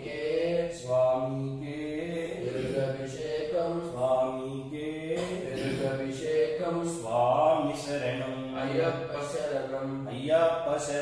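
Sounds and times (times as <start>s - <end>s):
man chanting: 0.0s - 11.0s.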